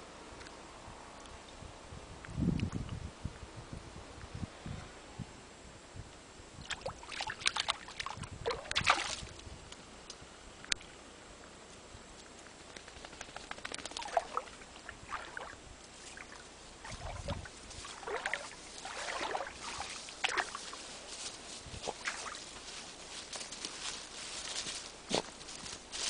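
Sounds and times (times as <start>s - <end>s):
water splashing and sloshing: 6.6s - 9.4s, 13.8s - 20.9s, 21.8s - 22.7s.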